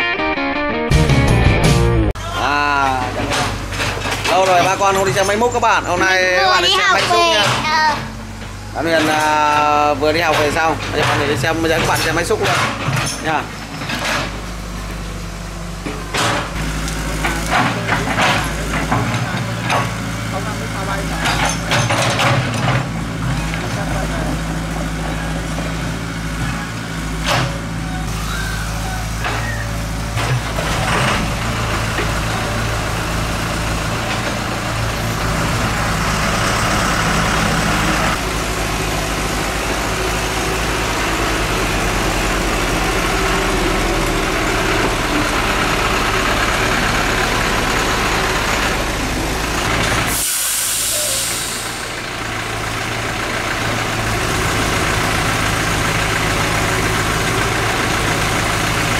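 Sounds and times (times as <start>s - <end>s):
excavator diesel engine running: 0.9s - 58.9s
brief hiss: 50.1s - 51.9s.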